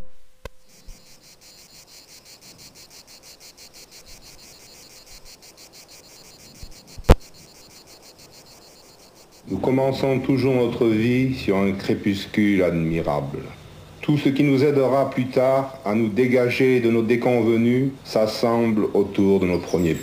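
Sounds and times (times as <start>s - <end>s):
insect chirping: 0.4s - 20.0s
sharp click: 6.6s - 7.3s.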